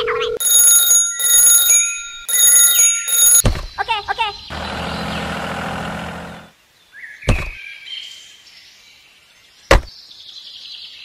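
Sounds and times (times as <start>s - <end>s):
steady engine sound: 4.5s - 6.5s.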